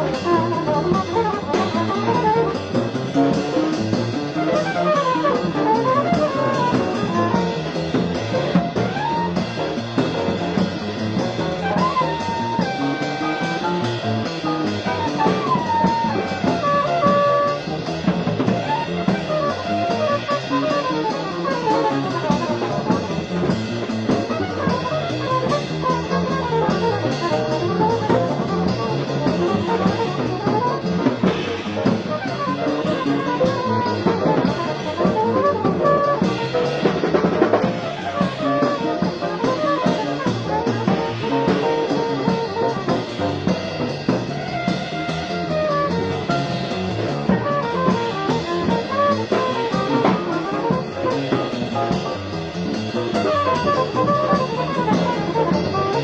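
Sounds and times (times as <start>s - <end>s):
bass: 0.0s - 56.0s
drums: 0.0s - 56.0s
piano: 0.0s - 56.0s.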